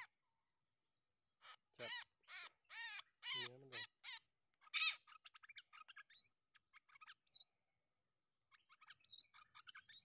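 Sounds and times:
bird chirps and whistled notes: 1.4 - 7.6, 8.3 - 10.0.

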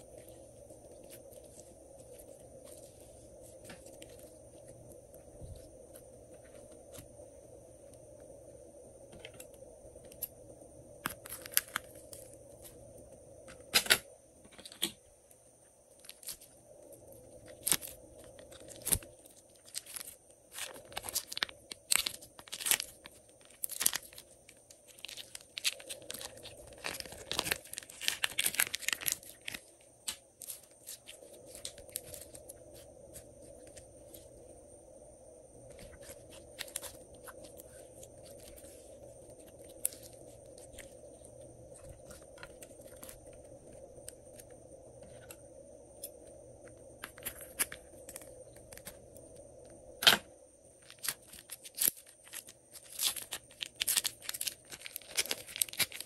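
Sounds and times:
plastic bag crinkling: 17.5 - 32.5, 50.8 - 56.0.

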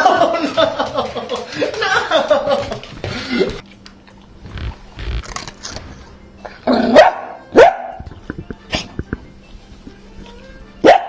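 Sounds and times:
dog barking: 6.9 - 8.0.

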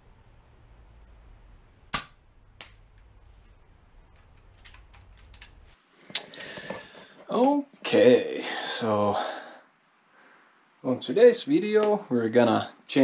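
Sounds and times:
low steady hum: 0.0 - 13.0
sharp clicks: 4.1 - 6.3.

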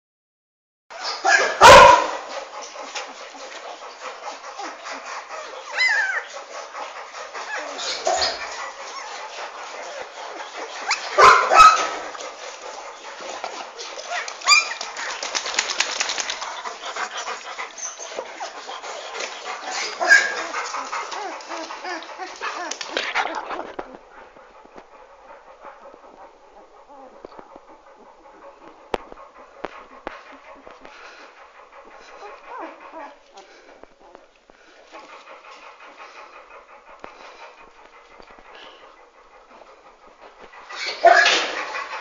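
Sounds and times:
puppies whimpering and yelping: 2.6 - 24.1, 26.6 - 28.8, 29.6 - 35.2.

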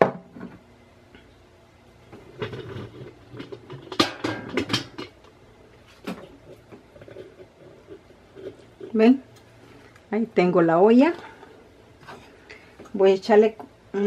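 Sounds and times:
pan and dishes clattering: 2.2 - 5.2.

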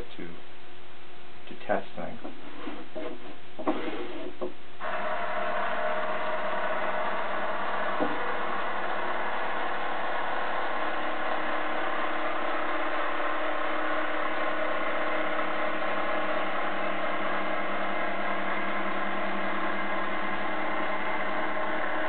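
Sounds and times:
gear motor running: 4.8 - 22.0.

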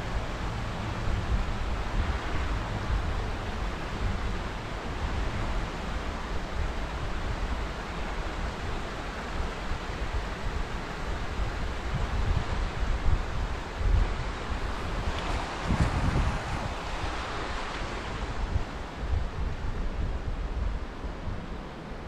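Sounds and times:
wind buffeting microphone: 11.1 - 21.7.

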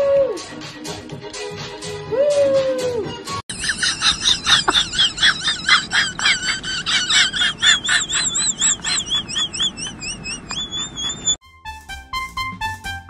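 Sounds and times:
dog toy squeaking: 7.8 - 11.4.

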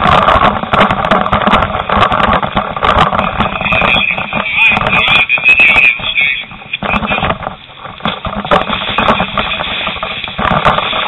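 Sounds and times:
loud rough noise: 0.0 - 11.0
muffled voices: 3.0 - 7.4.

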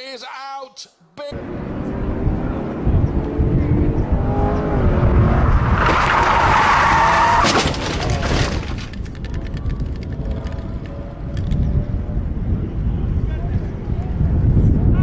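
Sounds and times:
loud tyre skid: 5.1 - 8.4
crackling of dirt and gravel: 5.8 - 11.6.

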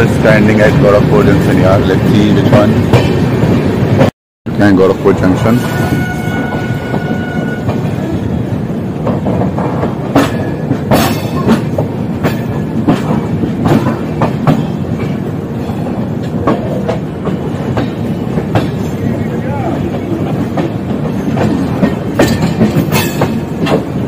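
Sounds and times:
moving train coach rumble: 0.0 - 24.0
train wheels clicking over rail joints: 0.5 - 4.1, 5.1 - 24.0.

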